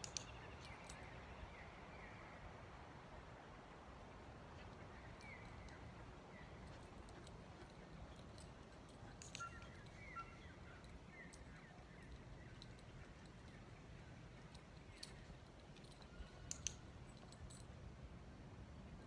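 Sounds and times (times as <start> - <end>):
faint clicks: 0.0 - 1.1, 6.6 - 13.7, 14.3 - 17.7.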